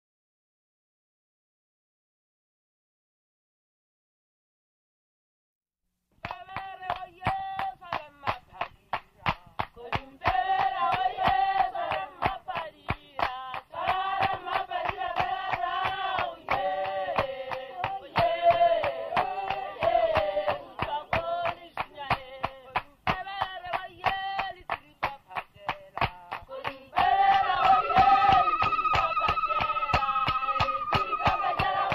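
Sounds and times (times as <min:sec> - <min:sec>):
rhythmic hand clapping: 0:06.2 - 0:31.9
group of voices singing: 0:09.7 - 0:31.9.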